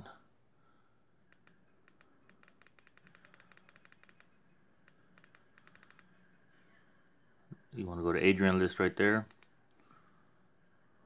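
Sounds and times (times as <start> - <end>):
faint rapid clicking: 1.3 - 6.4, 9.2 - 9.8.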